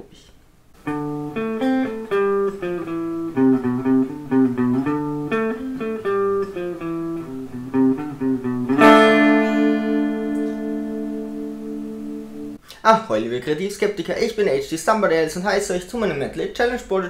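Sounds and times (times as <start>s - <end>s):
guitar chord ringing: 0.8s - 12.6s
plucked guitar notes: 0.8s - 12.6s.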